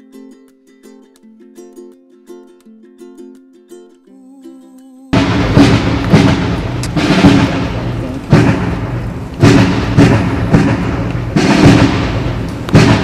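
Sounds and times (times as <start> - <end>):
loud drum beats: 5.2 - 13.0
military band playing a march: 5.2 - 13.0.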